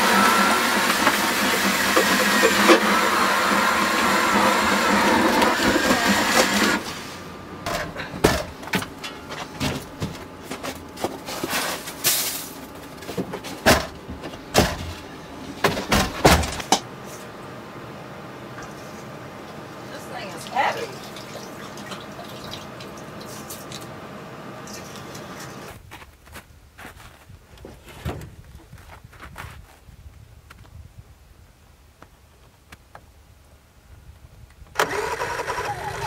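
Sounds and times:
power ice auger drilling: 0.0s - 7.8s, 34.8s - 36.0s
knocks and scrapes: 4.2s - 17.3s, 26.9s - 29.6s.

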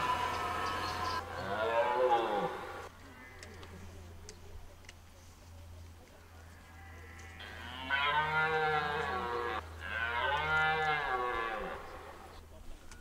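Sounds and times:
deer stag roaring: 0.0s - 3.6s, 6.7s - 12.4s.

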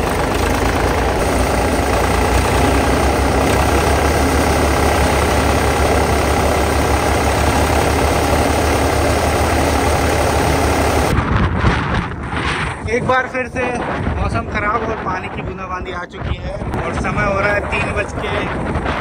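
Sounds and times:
tractor engine running under load: 0.0s - 11.2s
threshing machine noise: 0.0s - 12.9s.

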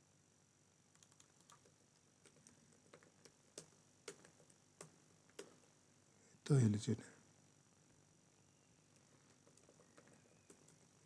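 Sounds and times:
computer mouse clicking: 0.9s - 5.6s, 9.3s - 10.9s
keyboard keys clicking: 1.0s - 5.6s.

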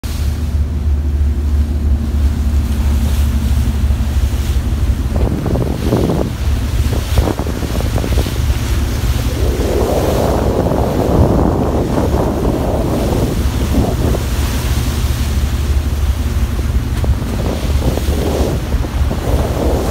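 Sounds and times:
hull wave rushing through sea: 0.0s - 19.9s
ship engine hum: 0.0s - 19.9s
wind buffeting microphone: 0.0s - 19.9s.

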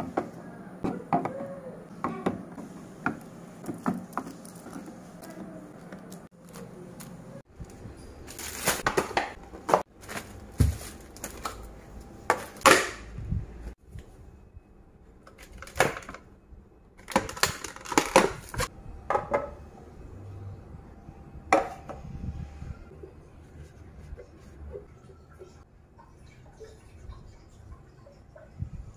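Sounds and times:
plastic packaging rustling: 4.0s - 11.7s, 17.0s - 18.7s.

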